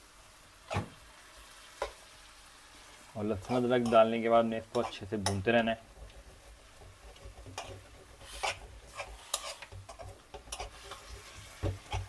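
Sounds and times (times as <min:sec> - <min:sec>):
metal spoon scraping pan: 0:03.4 - 0:12.0.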